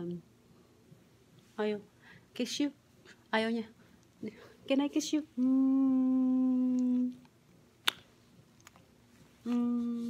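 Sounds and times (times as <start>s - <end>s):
woman humming: 5.4s - 7.3s, 9.4s - 10.0s.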